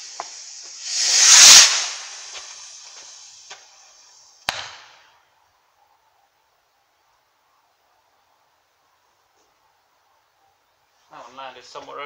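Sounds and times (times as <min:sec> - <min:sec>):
sharp firework bang: 0:00.0 - 0:02.6
rocket launching whoosh: 0:00.0 - 0:03.4
firework fuse fizzing: 0:00.0 - 0:05.0.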